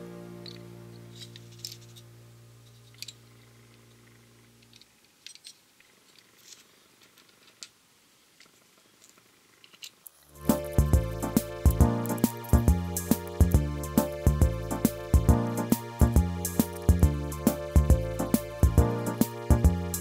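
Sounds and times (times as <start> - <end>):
background music held note: 0.0 - 2.6, 10.3 - 20.0
faint clicks of handling small parts: 0.5 - 10.3.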